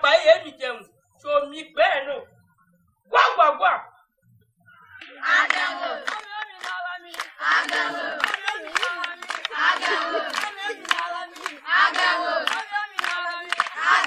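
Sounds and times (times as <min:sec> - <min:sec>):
crowd chanting in rhythm: 0:04.9 - 0:14.0
sharp claps: 0:05.0 - 0:14.0.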